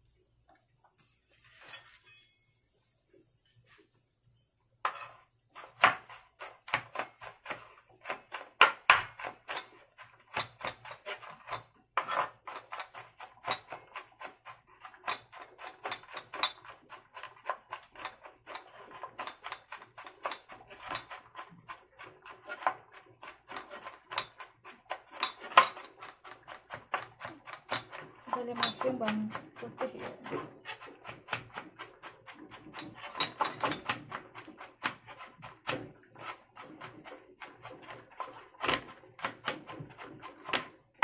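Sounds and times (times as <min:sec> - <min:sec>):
knife chopping on plastic board: 0:04.9 - 0:40.8.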